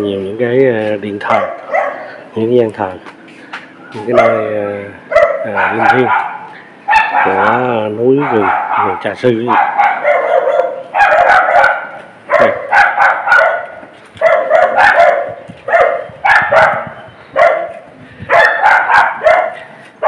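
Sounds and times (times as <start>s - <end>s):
dog barking: 1.3s - 2.2s, 4.1s - 4.5s, 5.1s - 19.7s.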